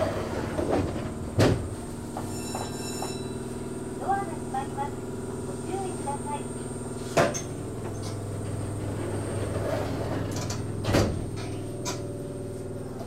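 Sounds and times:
train clunk: 0.0s - 3.7s, 7.0s - 13.0s
electric train humming: 0.0s - 13.0s.

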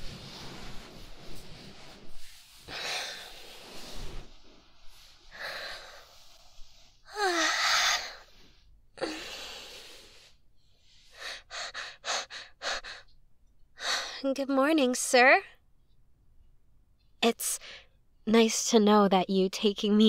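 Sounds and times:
woman sighing and breathing: 5.2s - 10.3s.

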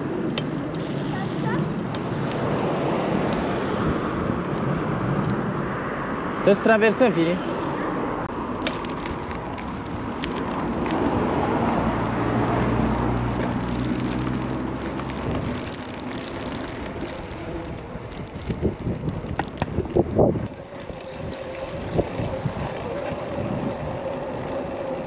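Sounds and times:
vehicle engine hum: 0.0s - 25.0s
sharp rattles and clicks: 8.5s - 11.5s
wind on microphone: 16.7s - 24.5s.

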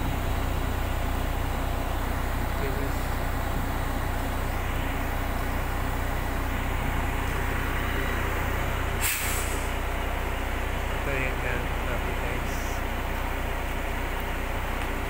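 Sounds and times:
heavy truck engine running: 0.0s - 15.0s
air hiss burst: 9.0s - 9.8s.

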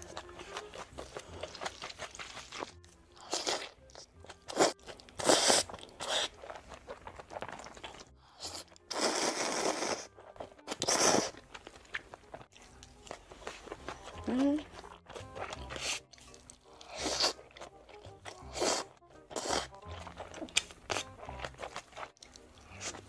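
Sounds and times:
chewing and wet mouth sounds: 0.0s - 23.0s
slurping noodles: 4.4s - 11.8s, 12.4s - 23.0s.

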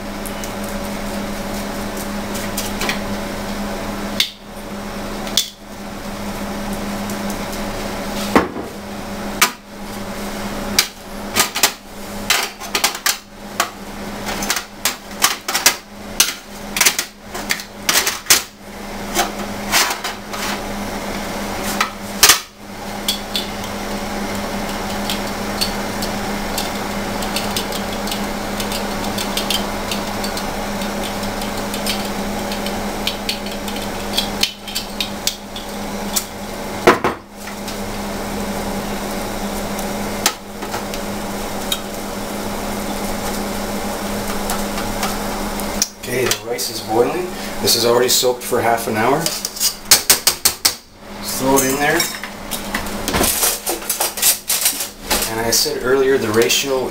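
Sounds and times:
steady hum: 0.0s - 56.9s
tongs clattering on metal tray: 24.6s - 36.3s, 53.1s - 55.4s.

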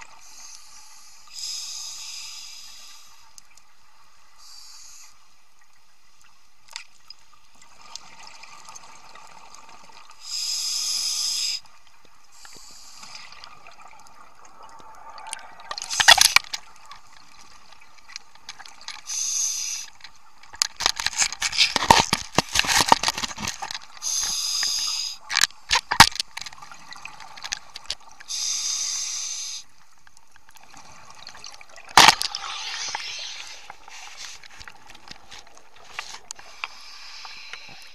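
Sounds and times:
regulator breathing underwater: 10.2s - 11.6s, 19.1s - 20.0s, 24.0s - 25.2s, 28.3s - 29.7s, 36.4s - 37.9s.

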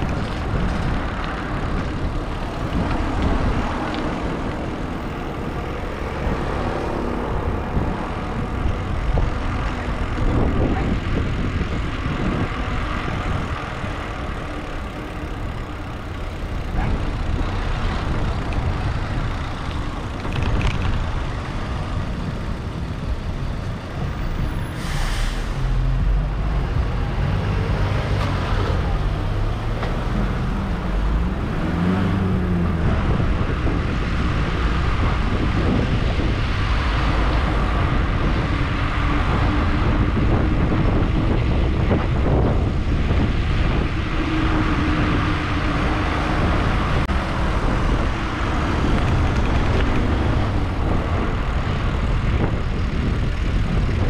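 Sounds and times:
passing cars and vehicles: 0.0s - 54.0s
steady engine hum: 0.0s - 54.0s
air brake hiss: 24.7s - 25.8s
engine revving: 24.8s - 54.0s.

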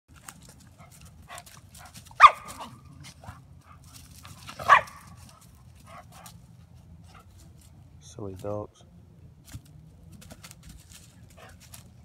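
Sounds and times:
dog barking: 1.3s - 2.8s, 4.5s - 5.2s.

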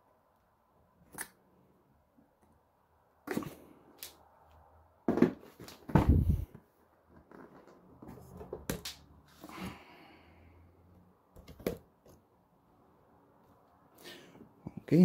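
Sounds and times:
box thumping on soft surface: 5.1s - 6.5s.

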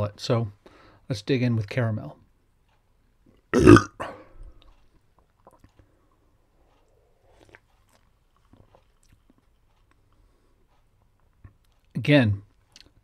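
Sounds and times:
sipping and swallowing: 3.6s - 4.1s.

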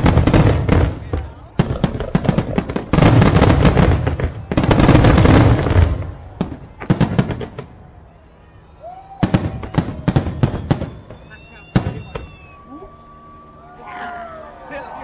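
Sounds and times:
fireworks bangs and crackling: 0.0s - 7.9s, 9.1s - 12.6s.

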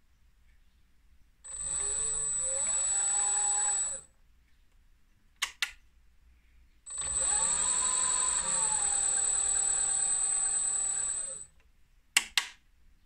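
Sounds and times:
lathe motor whine: 1.5s - 4.0s, 6.9s - 11.5s
switch clicks: 5.4s - 5.8s, 12.2s - 12.6s.

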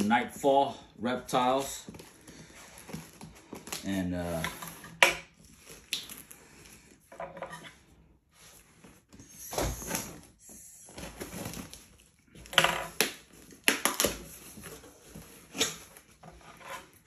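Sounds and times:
cardboard rustling and scraping: 1.3s - 17.0s
packing tape ripping off cardboard: 9.2s - 17.0s.

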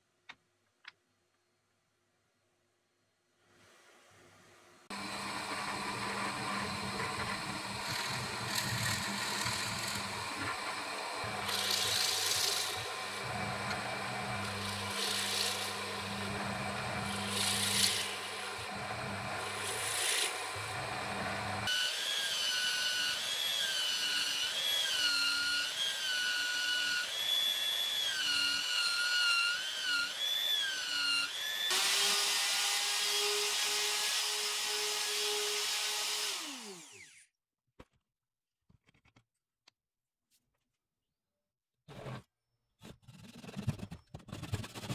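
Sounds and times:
drill press boring into wood: 4.9s - 37.2s
router running at high speed: 4.9s - 37.2s
power tool motor under load: 4.9s - 37.3s.

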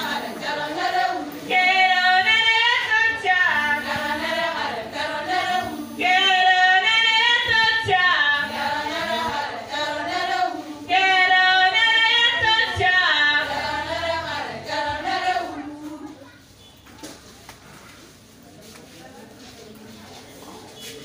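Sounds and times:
women singing without instruments: 0.0s - 16.2s.

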